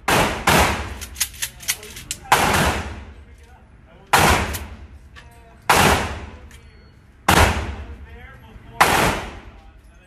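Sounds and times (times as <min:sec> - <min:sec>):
gunshots with long echo: 0:00.0 - 0:01.0, 0:02.3 - 0:03.1, 0:04.2 - 0:04.8, 0:05.7 - 0:06.3, 0:07.3 - 0:07.9, 0:08.8 - 0:09.5.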